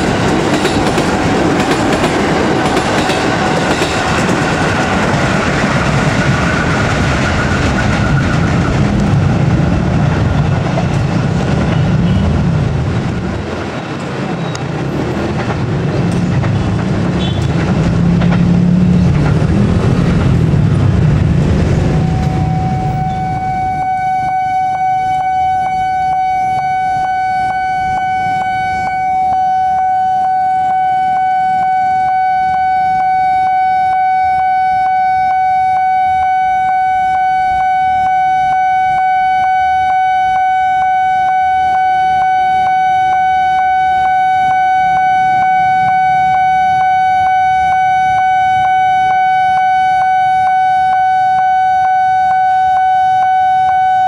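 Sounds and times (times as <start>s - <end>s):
low rumble: 5.0s - 14.3s, 14.9s - 24.0s
level crossing alarm ringing: 21.8s - 54.0s.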